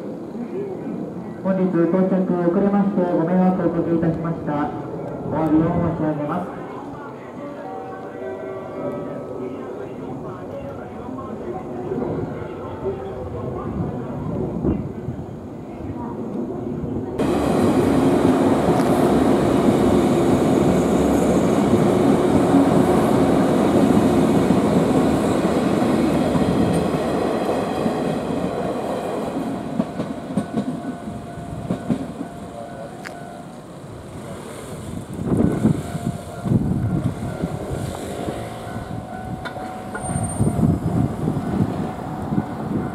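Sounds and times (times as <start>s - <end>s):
electric train passing: 0.0s - 42.9s
road vehicles passing: 17.2s - 30.3s, 32.5s - 42.9s.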